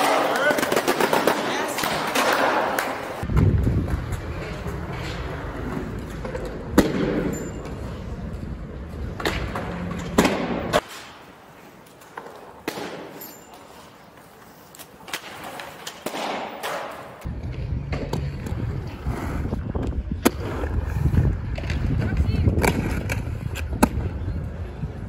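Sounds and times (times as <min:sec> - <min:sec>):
skates clacking on ledges: 0:00.0 - 0:17.3
skate wheels rolling on concrete: 0:00.0 - 0:25.0.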